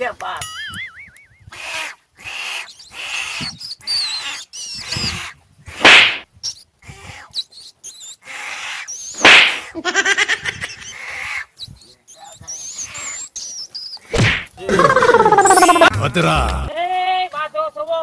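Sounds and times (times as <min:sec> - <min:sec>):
high chirps: 0:00.4 - 0:01.5, 0:14.7 - 0:15.9
loud animal shrieks: 0:01.5 - 0:05.4, 0:08.2 - 0:09.0
harsh animal calls: 0:01.5 - 0:06.0, 0:06.8 - 0:09.8, 0:12.2 - 0:16.0.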